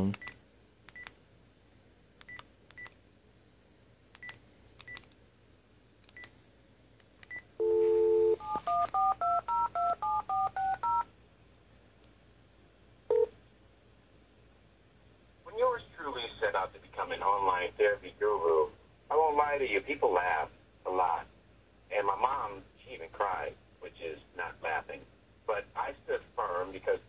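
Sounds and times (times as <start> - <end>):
faint key-press beeps: 0.1 - 1.2, 2.2 - 3.0, 4.2 - 5.1, 6.1 - 6.3, 7.2 - 11.0, 13.1 - 13.3
touch-tone dialing beeps: 7.3 - 11.1
dial tone: 7.6 - 11.0.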